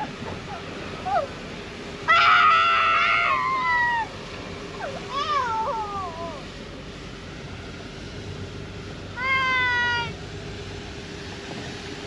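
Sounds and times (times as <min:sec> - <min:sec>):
child screaming: 0:02.1 - 0:04.1, 0:05.1 - 0:06.4, 0:09.2 - 0:10.2.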